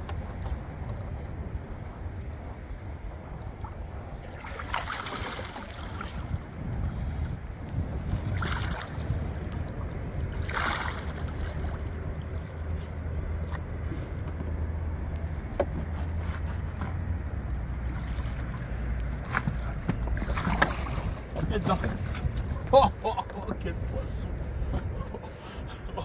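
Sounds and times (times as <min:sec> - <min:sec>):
steady low rumble: 0:00.0 - 0:26.0
water splashing: 0:03.5 - 0:12.8, 0:17.4 - 0:23.4.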